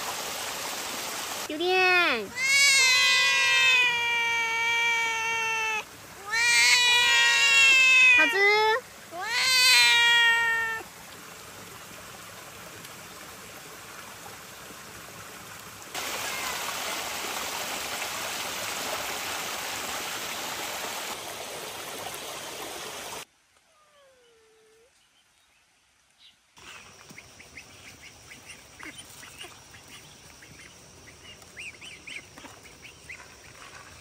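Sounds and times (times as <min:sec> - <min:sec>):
cat meowing: 0:02.3 - 0:08.4, 0:09.2 - 0:10.8.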